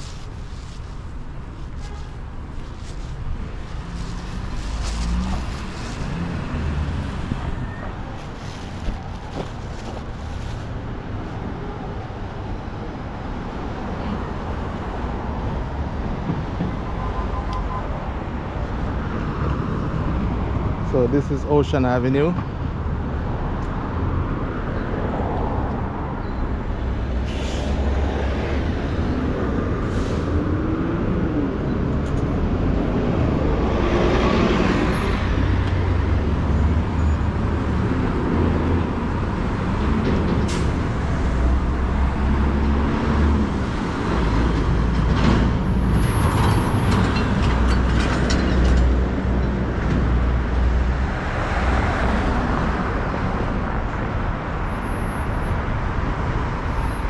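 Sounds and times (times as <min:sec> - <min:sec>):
traffic rumble: 0:00.0 - 0:57.0
brief hisses: 0:27.2 - 0:27.8.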